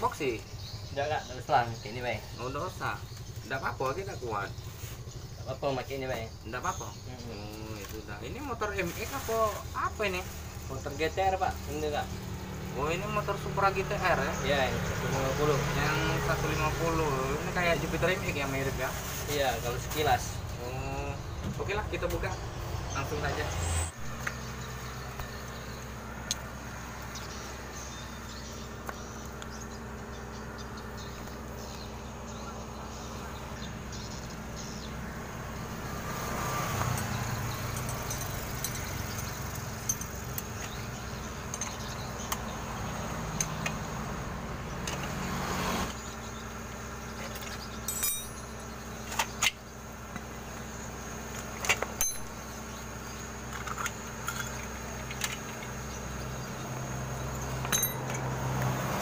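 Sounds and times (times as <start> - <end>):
wrench and chain metal clinks: 36.9 - 40.2, 47.8 - 48.6, 57.4 - 58.2.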